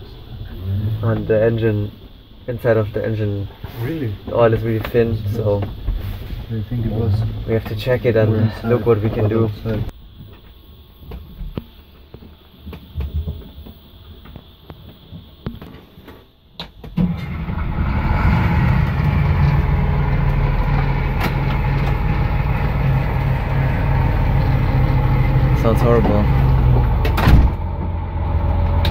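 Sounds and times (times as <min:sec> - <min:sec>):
boat engine running loud: 0:17.2 - 0:28.9.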